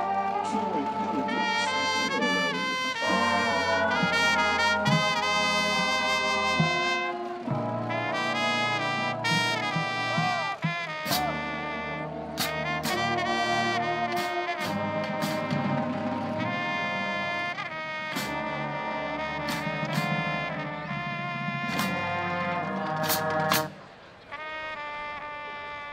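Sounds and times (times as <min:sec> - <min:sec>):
sousaphone bass line: 0:00.0 - 0:07.0
marching band brass chords: 0:00.0 - 0:25.9.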